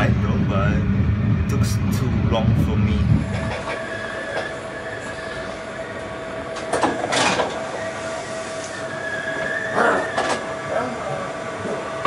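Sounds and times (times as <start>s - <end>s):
train hum with whine: 0.0s - 12.0s.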